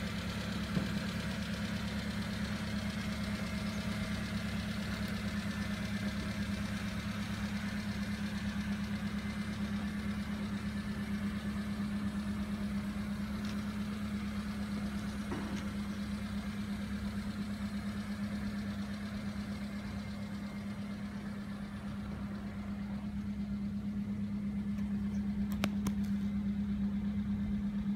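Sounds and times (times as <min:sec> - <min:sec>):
truck engine idling: 0:00.0 - 0:27.9
light clicks: 0:24.7 - 0:26.3.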